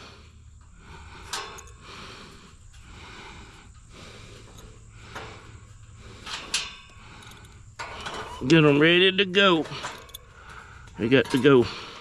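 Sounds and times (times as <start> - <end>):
soft breathing: 0.0 - 8.4, 9.7 - 12.0
wrench clinking on metal: 9.6 - 10.3.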